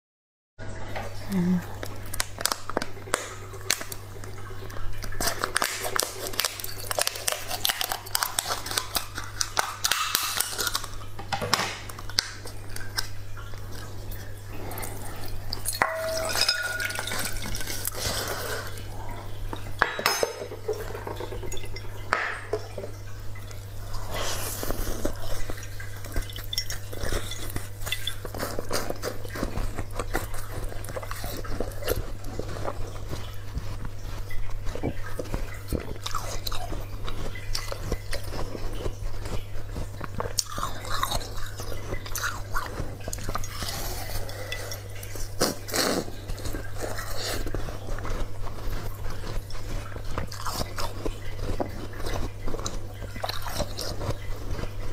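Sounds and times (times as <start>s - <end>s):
ice clinking against glass bowl: 15.6s - 18.2s, 19.6s - 22.8s, 26.3s - 28.4s.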